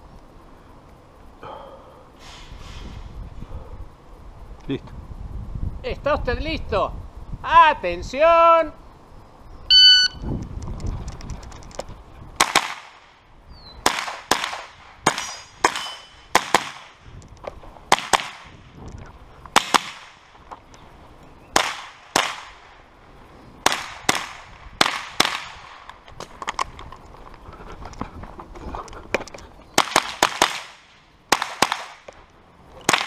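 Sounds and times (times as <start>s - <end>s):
rifle gunshots: 29.8s - 32.1s.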